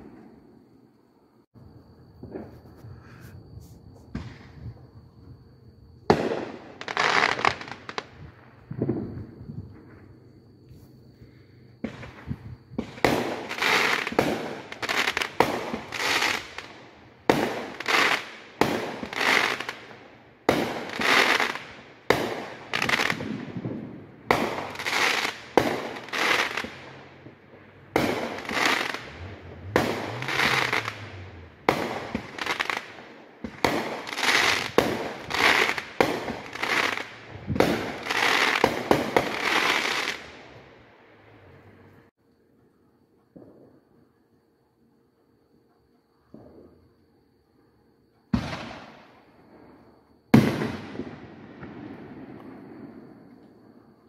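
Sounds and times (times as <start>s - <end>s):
fireworks bangs with crackling: 2.2s - 3.3s, 4.0s - 4.9s, 6.0s - 10.1s, 11.8s - 40.6s, 48.3s - 49.2s, 50.3s - 53.2s.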